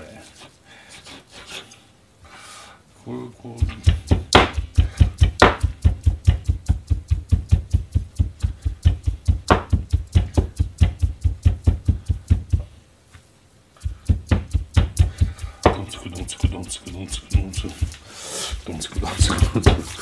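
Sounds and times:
cleaver chopping on cutting board: 3.6s - 12.7s, 13.8s - 20.0s.

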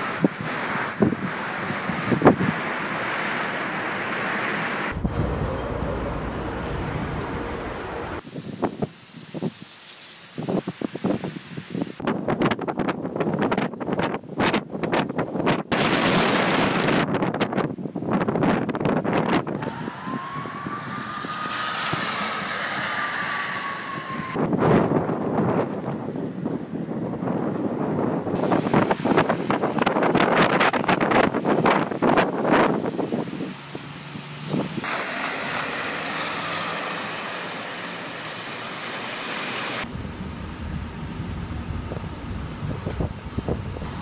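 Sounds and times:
wind buffeting microphone: 0.0s - 2.8s, 4.8s - 9.6s, 10.4s - 36.7s, 39.8s - 44.0s
snow tractor churning snow: 0.0s - 8.2s, 19.5s - 24.5s, 32.7s - 39.9s
low street rumble: 0.0s - 10.1s, 19.2s - 44.0s
steady rushing wind with whine: 0.0s - 44.0s.

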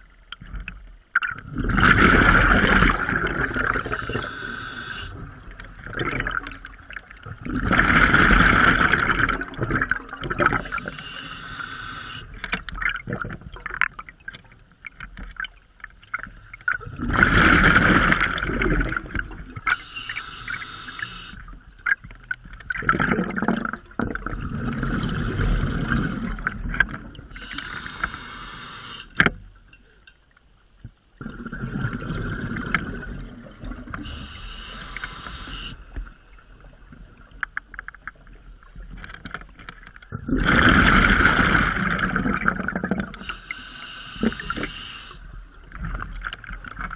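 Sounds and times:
rush of exhaled bubbles: 1.4s - 12.3s, 16.8s - 19.8s, 22.8s - 28.9s, 31.2s - 35.8s, 40.2s - 46.0s
hissing regulator inhale: 3.8s - 5.2s, 10.6s - 12.4s, 19.7s - 21.4s, 27.4s - 29.2s, 34.0s - 36.1s, 43.2s - 45.4s.

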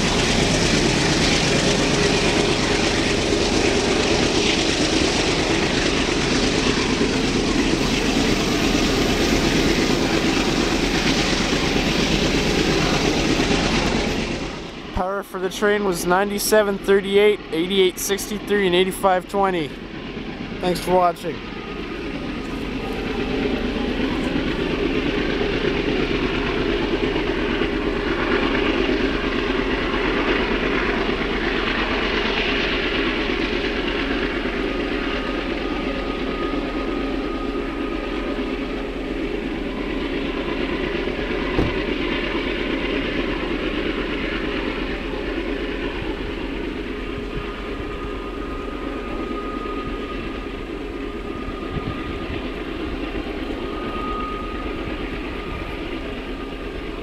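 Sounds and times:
diesel locomotive engine working hard: 0.0s - 57.0s
thin high tone: 53.5s - 56.4s.

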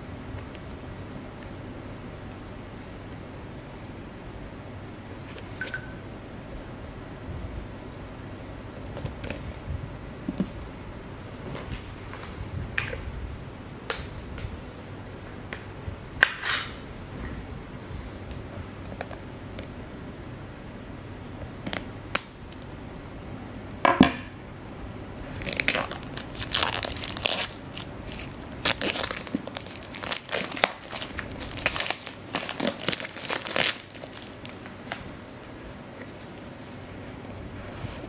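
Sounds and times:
plastic wrap tearing and crinkling: 25.3s - 35.0s.

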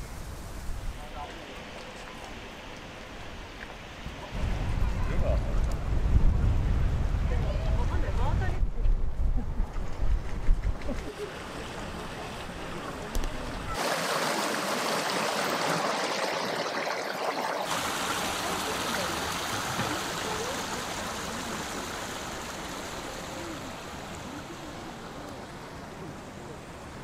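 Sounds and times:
stream running over stones: 11.0s - 27.0s
faint distant voices: 18.0s - 27.0s.

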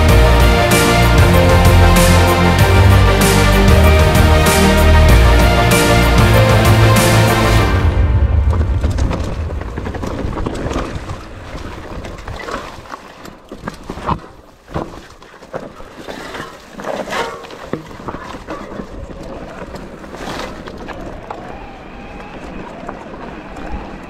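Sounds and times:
wind buffeting microphone: 7.9s - 12.9s.

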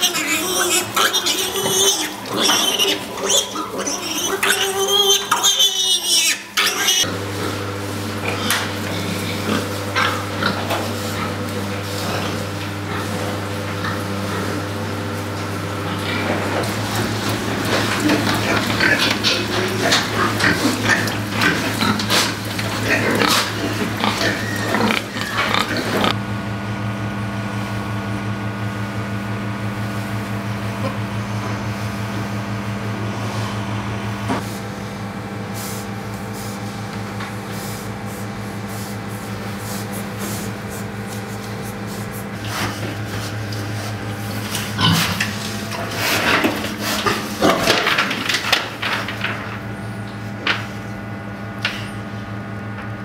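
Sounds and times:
pigs grunting: 0.0s - 26.2s, 35.6s - 50.6s
steady mechanical hum: 0.0s - 53.0s.

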